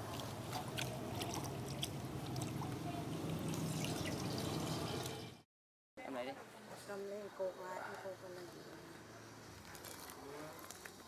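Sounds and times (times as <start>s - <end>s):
water pouring and trickling: 0.0s - 5.4s.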